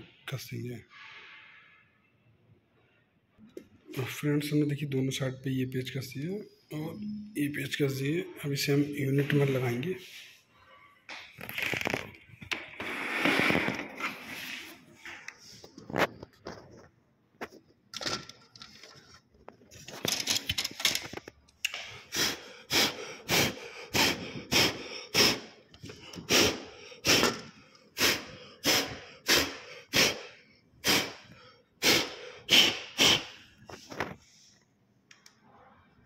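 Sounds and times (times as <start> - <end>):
rustling and handling noise: 11.2 - 21.6, 33.6 - 34.8
breathy puffs of air: 21.7 - 33.8.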